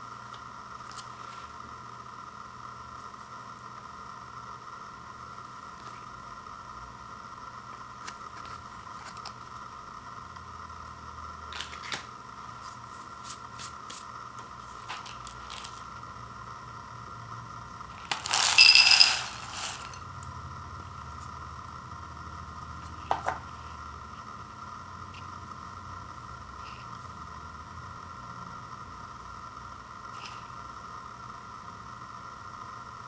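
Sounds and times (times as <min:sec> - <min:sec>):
dry pasta pouring into ceramic bowl: 0:18.0 - 0:20.0.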